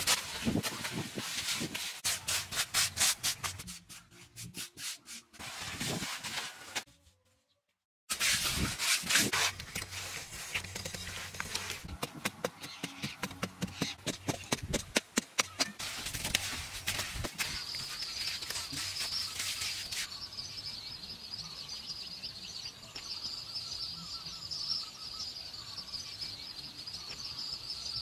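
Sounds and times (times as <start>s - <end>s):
metal tool chipping dry earth: 8.1s - 20.2s
trowel scraping wet mortar: 8.1s - 20.2s.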